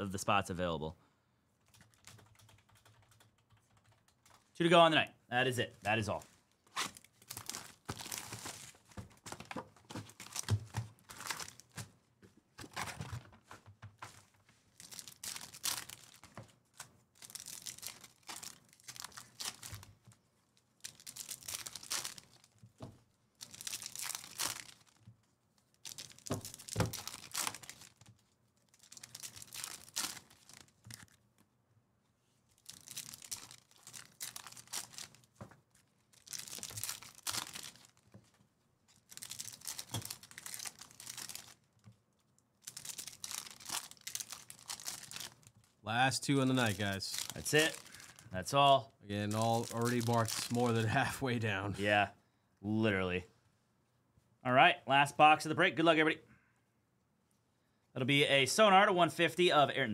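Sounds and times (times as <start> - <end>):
foil wrappers tearing and crinkling: 6.7 - 11.8, 14.7 - 19.9, 20.8 - 22.6, 23.4 - 25.0, 25.7 - 31.2, 32.6 - 35.3, 36.0 - 38.0, 38.9 - 41.7, 42.6 - 45.5, 46.5 - 48.3, 49.3 - 50.8.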